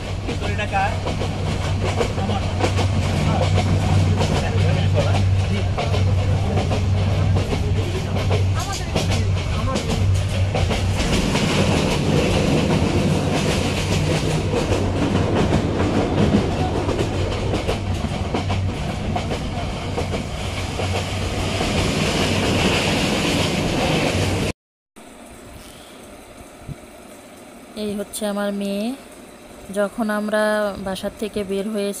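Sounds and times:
train running rumble: 0.0s - 24.5s, 25.1s - 32.0s
wheels clattering over rails: 0.0s - 24.5s.

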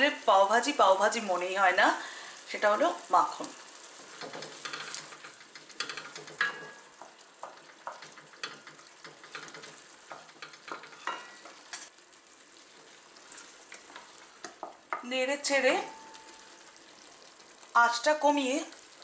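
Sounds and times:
steady sizzle: 0.0s - 19.0s
wooden spatula scraping a pot: 2.6s - 17.6s.

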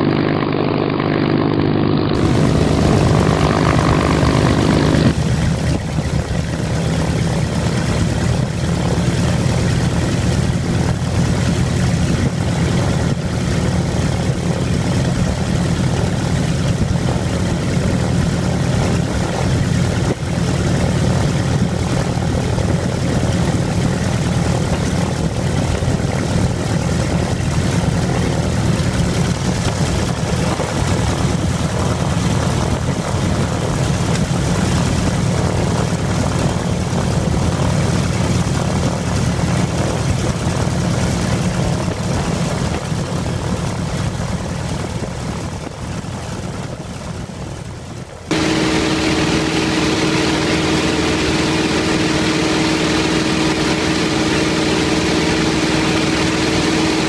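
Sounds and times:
propeller aircraft engine rumble: 0.0s - 57.0s
steady hum tone: 48.3s - 57.0s.

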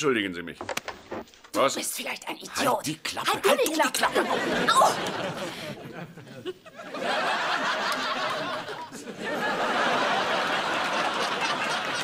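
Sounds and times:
studio audience laughing: 4.1s - 12.0s.

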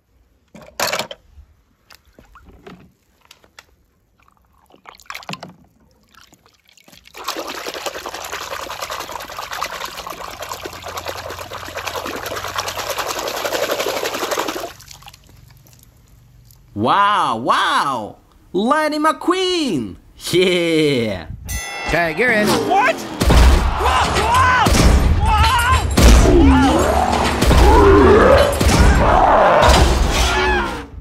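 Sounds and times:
water pouring: 4.1s - 16.6s.

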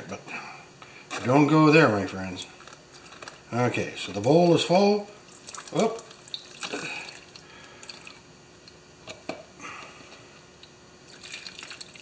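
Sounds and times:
drips and small splashes: 5.3s - 8.8s, 10.6s - 12.0s
liquid pouring into plastic cup: 5.3s - 8.8s, 11.0s - 12.0s.

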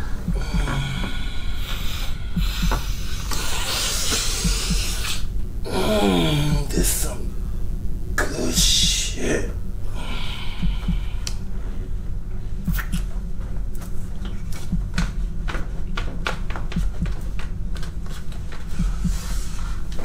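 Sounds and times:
low throbbing drone: 0.0s - 20.0s.

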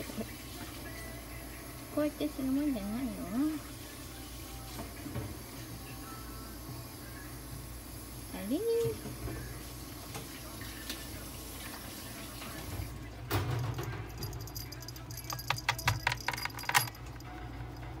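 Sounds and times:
light metallic clicks and rattles: 13.3s - 17.3s.

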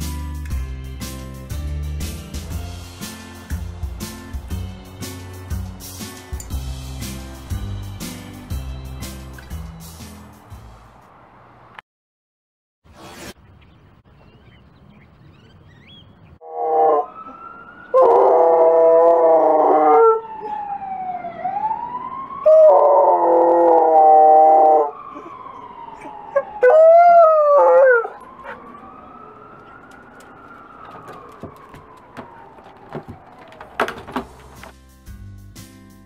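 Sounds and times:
dog howling: 16.4s - 20.7s, 22.5s - 25.0s, 26.0s - 33.6s.

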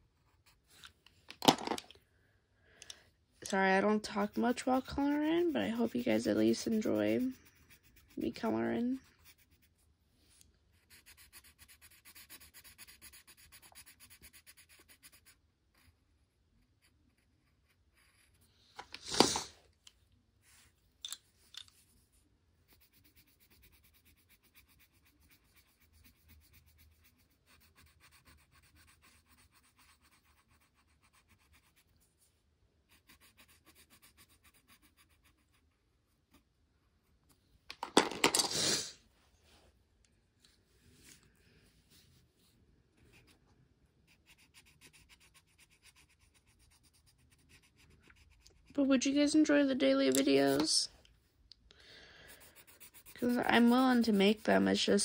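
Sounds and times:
colored pencil shading on paper: 0.0s - 0.8s, 3.5s - 19.5s, 21.8s - 37.4s, 43.0s - 50.9s, 52.2s - 55.0s
person sniffing: 18.9s - 19.6s, 38.4s - 39.1s, 51.8s - 52.8s.

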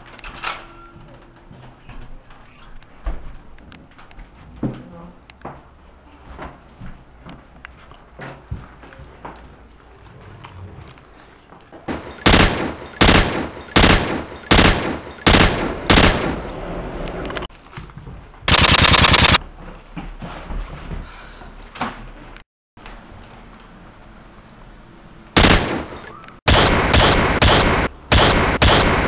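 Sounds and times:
rapid automatic gunfire: 11.9s - 16.5s, 18.5s - 19.4s, 25.4s - 29.0s
single gunshots: 11.9s - 16.5s, 25.4s - 29.0s.

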